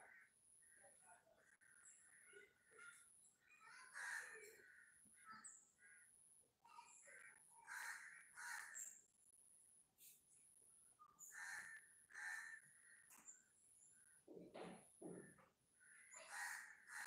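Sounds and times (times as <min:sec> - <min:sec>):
crows cawing: 0:00.0 - 0:00.4, 0:03.7 - 0:06.2, 0:07.1 - 0:08.9, 0:11.2 - 0:13.2, 0:15.1 - 0:17.0.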